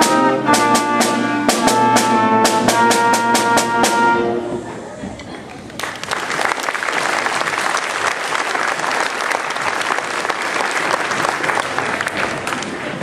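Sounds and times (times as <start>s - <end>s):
audience applauding: 5.5s - 13.0s.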